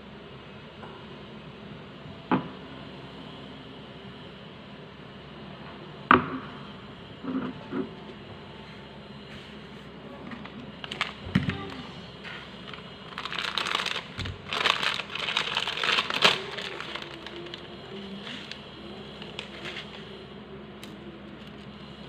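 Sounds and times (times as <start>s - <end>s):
rustling and scraping: 8.6s - 18.6s, 19.2s - 20.1s.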